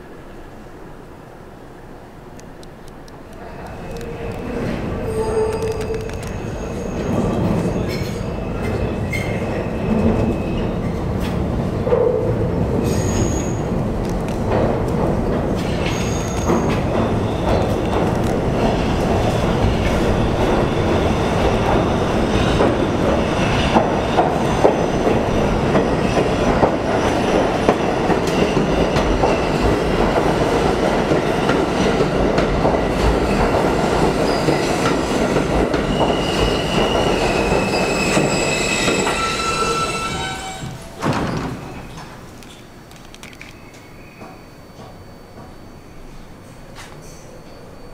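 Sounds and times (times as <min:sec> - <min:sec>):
subway train wheels rumbling: 0:00.0 - 0:47.9
high brake squeal: 0:05.0 - 0:10.7, 0:12.8 - 0:13.6, 0:15.7 - 0:17.6, 0:35.9 - 0:42.0.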